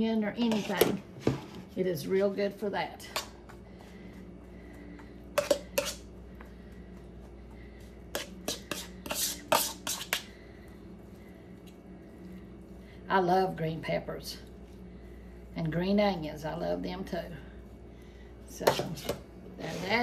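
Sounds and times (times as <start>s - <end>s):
faint steady hum: 0.0s - 20.0s
plastic spatula scraping plastic bowl: 0.4s - 1.7s, 8.2s - 10.3s, 18.6s - 20.0s.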